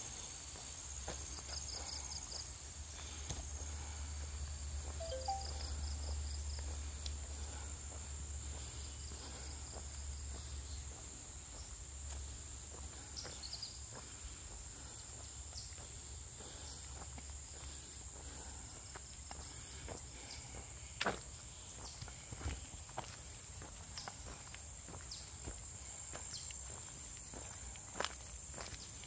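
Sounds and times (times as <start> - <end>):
faint footsteps on a trail: 0.0 - 29.0
insects droning: 0.0 - 29.0.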